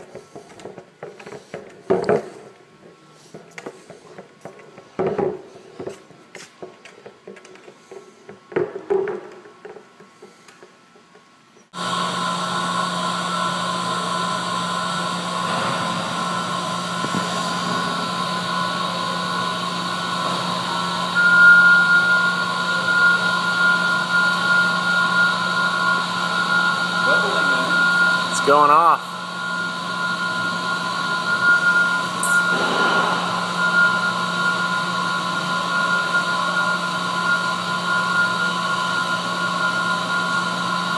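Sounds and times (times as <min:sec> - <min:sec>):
machine hum with fixed tones: 0:10.2 - 0:40.9.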